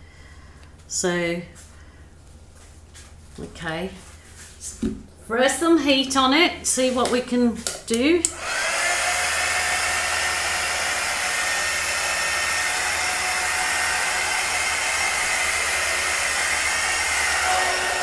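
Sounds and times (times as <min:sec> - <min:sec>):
fan motor whine: 0:08.2 - 0:18.0
heat gun blowing: 0:08.2 - 0:18.0.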